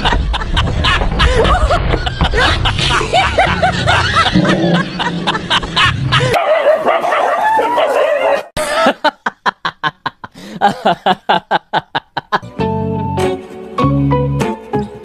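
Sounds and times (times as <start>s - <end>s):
dog yipping and barking: 6.4s - 8.5s.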